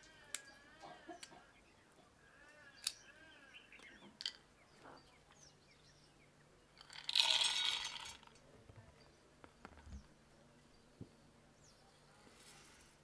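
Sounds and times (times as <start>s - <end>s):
peanuts rattling into metal jar: 6.8s - 8.3s.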